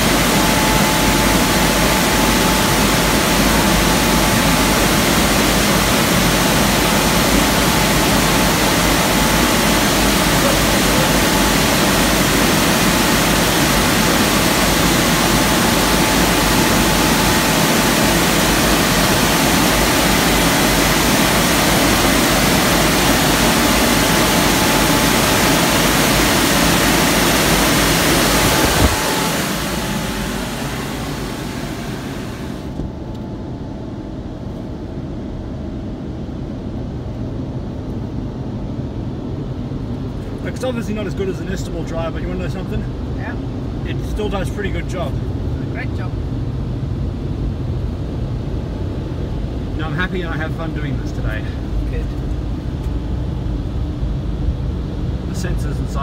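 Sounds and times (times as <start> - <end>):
car wash dryer blowers rushing: 0.0 - 34.3, 38.7 - 56.0
faint steady whine: 0.0 - 56.0.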